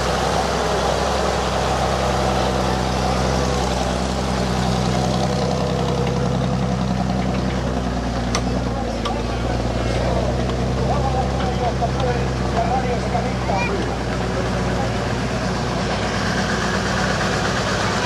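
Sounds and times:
truck engine running: 0.0s - 18.0s.

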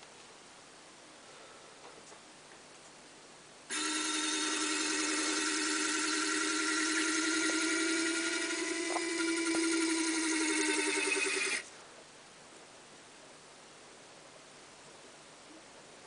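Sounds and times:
small gear motor whining: 3.7s - 11.7s.

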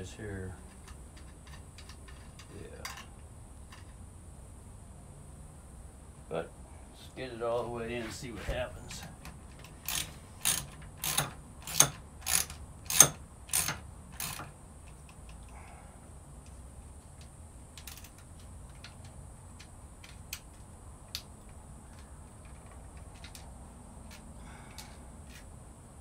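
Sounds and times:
ratchet tool clicking: 9.6s - 15.4s.

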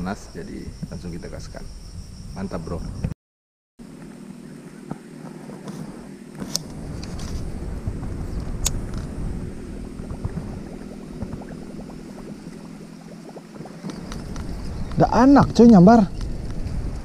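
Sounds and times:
steady low hum: 3.8s - 17.0s.

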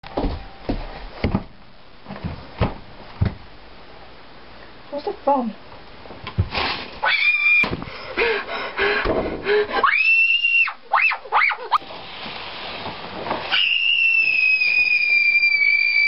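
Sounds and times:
girl screaming: 7.0s - 7.7s, 9.8s - 11.8s, 13.5s - 16.0s.

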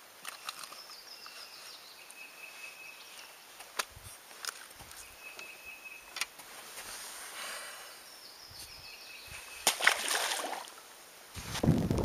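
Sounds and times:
faint high chirp: 0.3s - 3.4s, 4.9s - 6.2s.

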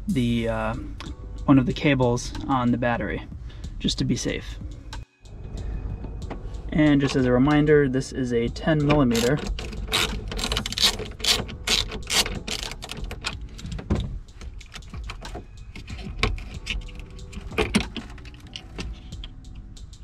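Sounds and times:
hand ratchet clicking: 8.8s - 19.6s.

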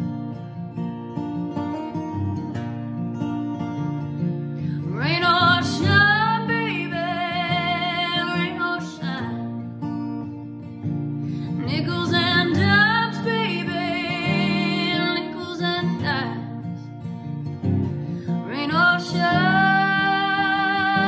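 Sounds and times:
acoustic guitar strumming: 0.0s - 21.0s
woman singing: 4.7s - 9.7s, 11.5s - 16.9s, 18.2s - 21.0s.

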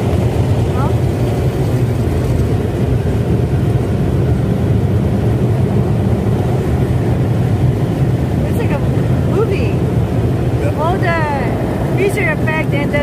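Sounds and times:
car wash air blowers: 0.0s - 13.0s.

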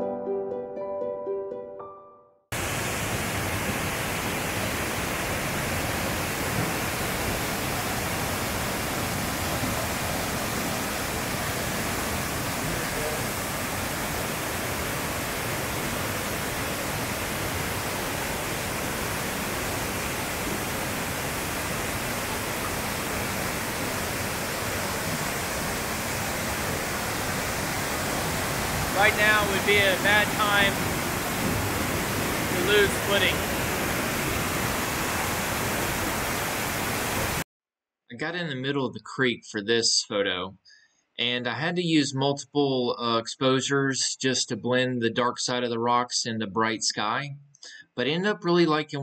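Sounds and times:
waterfall rushing over rocks: 2.6s - 37.4s.

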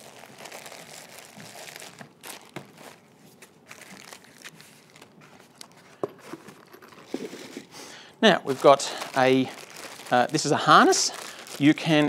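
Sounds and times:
plastic bags crinkling: 0.0s - 12.0s.

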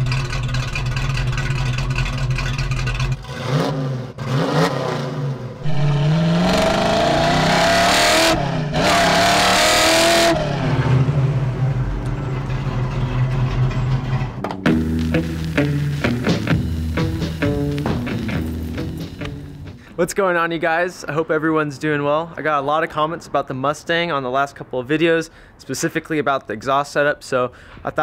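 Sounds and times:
vee-eight car engine revving: 0.0s - 19.8s.

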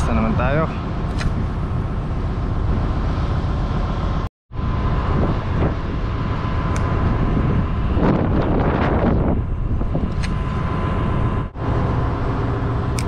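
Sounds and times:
ship engine rumble: 0.0s - 13.0s
wind on microphone: 4.5s - 13.0s.

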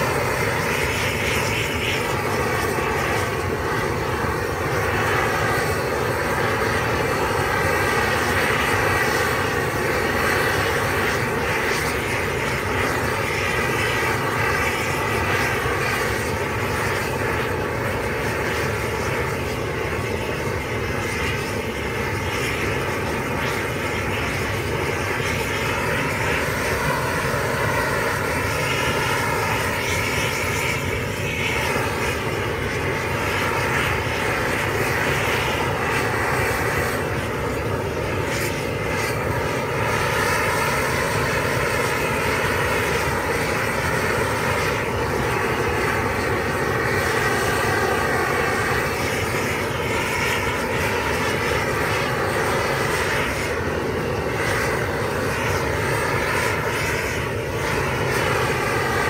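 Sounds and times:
flamethrower torch roaring: 0.0s - 59.0s.

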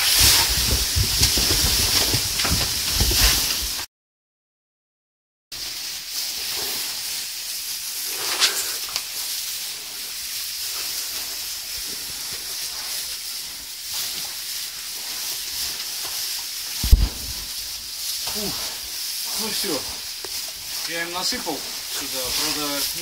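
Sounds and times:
sharp crackle of straw: 0.0s - 3.9s, 5.6s - 23.0s
straw rustling: 5.6s - 23.0s.

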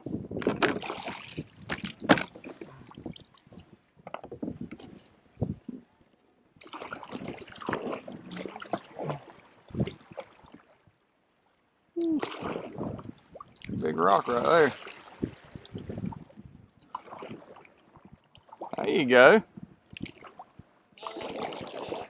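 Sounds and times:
water sloshing against kayak hull: 0.0s - 5.9s, 6.6s - 10.9s, 12.0s - 19.0s, 19.7s - 22.0s.

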